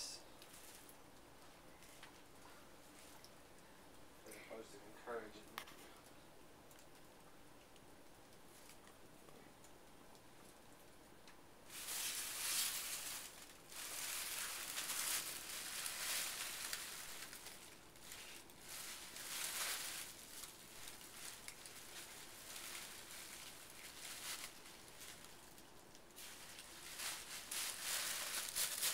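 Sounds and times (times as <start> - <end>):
plastic bags crinkling: 11.7 - 28.9.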